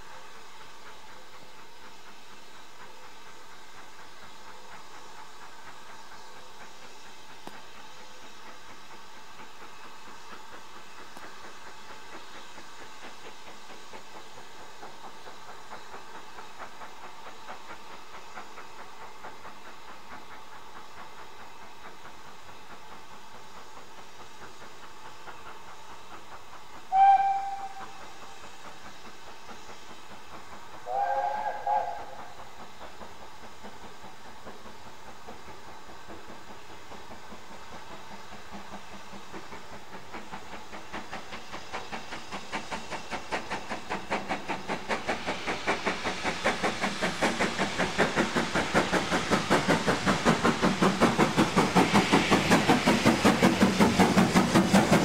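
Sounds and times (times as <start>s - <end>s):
steam hissing: 0.0s - 55.0s
steam locomotive exhaust beat: 0.0s - 55.0s
two-note whistle: 26.9s - 27.8s
steam whistle blast: 26.9s - 28.0s, 30.8s - 32.3s.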